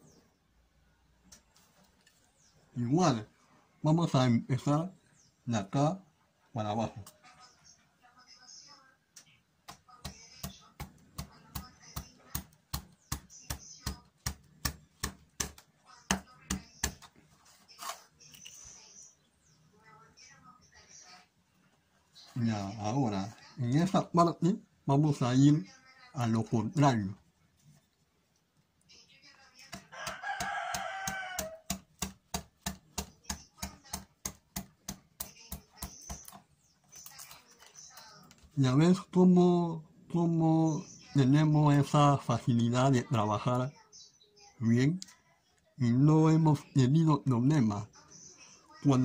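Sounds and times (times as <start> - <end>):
taps on carving gouge: 9.6 - 17.1, 29.7 - 36.4
rooster crowing: 29.9 - 31.7.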